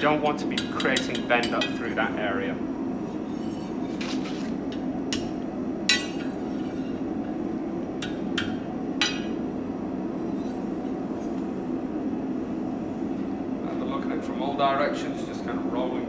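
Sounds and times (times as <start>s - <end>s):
hammer striking iron on anvil: 0.5s - 1.8s, 5.1s - 6.4s, 8.0s - 9.4s.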